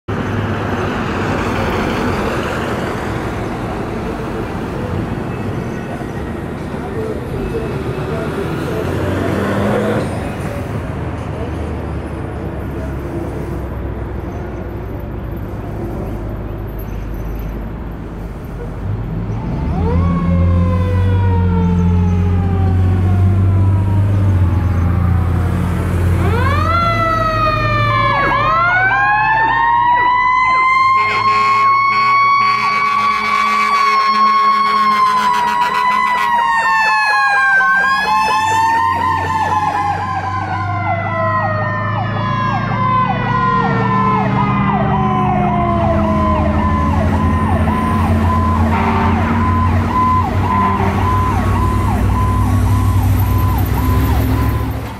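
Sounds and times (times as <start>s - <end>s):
truck engine and traffic drone: 0.1s - 54.9s
mechanical siren wail: 19.4s - 25.6s, 26.2s - 54.8s
electronic siren yelp: 19.6s - 25.4s, 26.2s - 54.8s.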